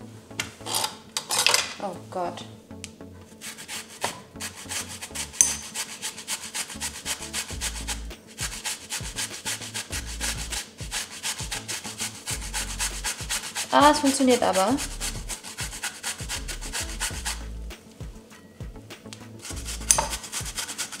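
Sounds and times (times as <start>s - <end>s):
zucchini rasping on a grater: 3.4s - 17.5s, 19.4s - 21.0s.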